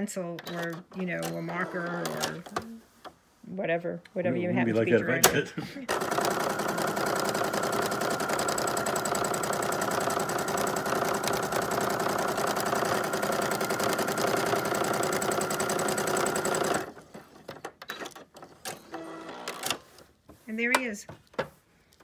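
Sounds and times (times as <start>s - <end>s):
sewing machine running: 5.9s - 17.3s.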